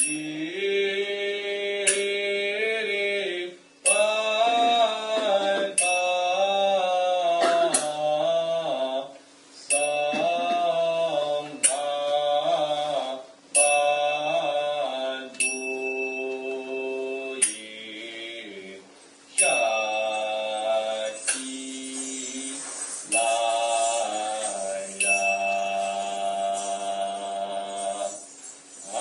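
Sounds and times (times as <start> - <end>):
hand cymbals ringing: 0.0 - 0.6, 3.8 - 4.7, 5.8 - 6.4, 9.7 - 10.6, 13.6 - 14.4, 15.4 - 17.8, 19.4 - 29.0
person chanting in held notes: 0.0 - 29.0.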